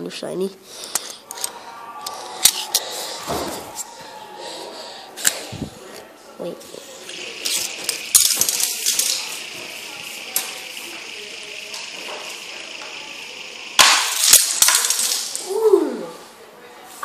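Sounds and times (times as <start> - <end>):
fidget spinner whirring: 0.8 - 15.6
toy car crashing and rattling: 7.2 - 15.6.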